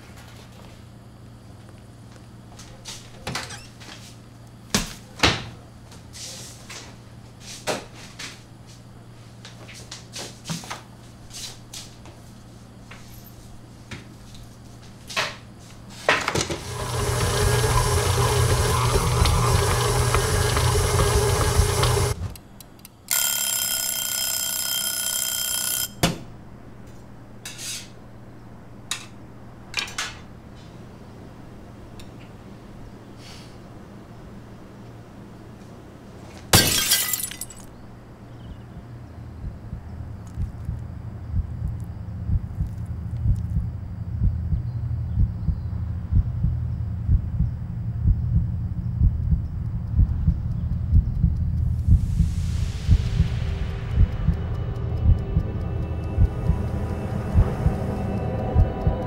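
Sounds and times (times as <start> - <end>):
stand mixer motor running: 16.6 - 22.3
buzzing alarm tone: 20.6 - 26.8, 51.6 - 59.0.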